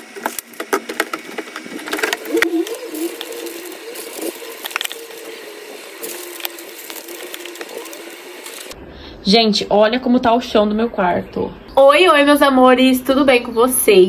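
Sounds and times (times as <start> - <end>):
plastic packets clicking and crinkling: 0.0 - 8.8
low wavering hum: 1.2 - 9.2.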